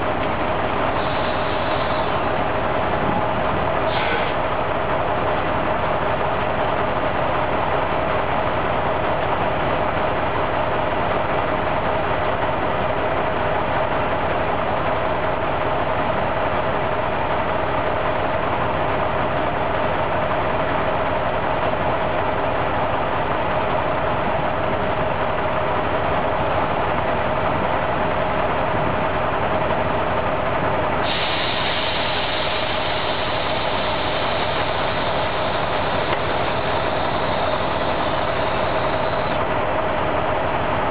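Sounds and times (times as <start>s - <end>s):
diesel engine idling: 0.0s - 40.9s
steady high hiss: 31.1s - 39.4s.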